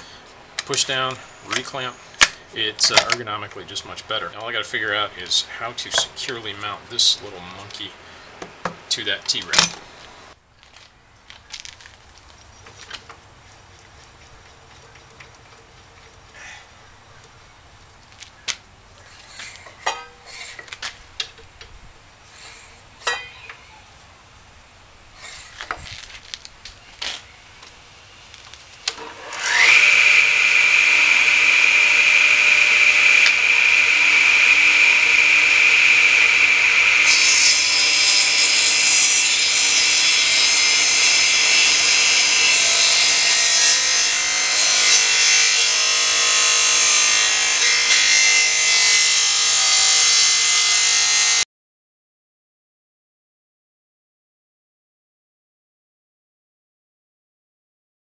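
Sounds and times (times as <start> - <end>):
saw cutting wood: 0.0 - 7.9, 28.7 - 51.4
table saw motor whine: 0.6 - 2.4, 28.9 - 51.4.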